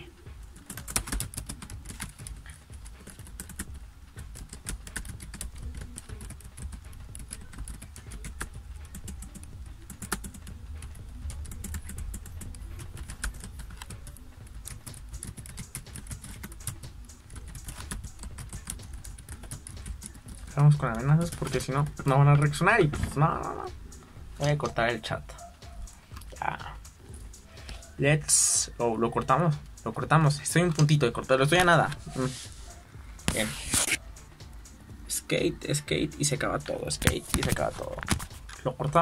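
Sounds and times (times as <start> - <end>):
typing on a keyboard: 0.5 - 22.1.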